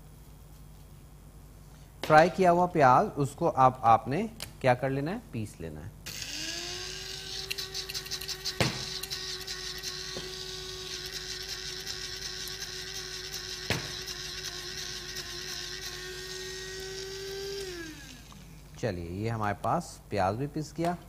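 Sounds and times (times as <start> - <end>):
electric spice grinder whining: 6.1 - 18.8.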